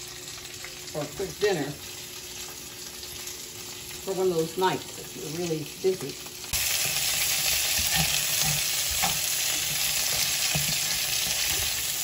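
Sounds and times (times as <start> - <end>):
vegetables sizzling in frying pan: 0.0 - 12.0
spatula scraping and tapping pan: 6.8 - 11.8.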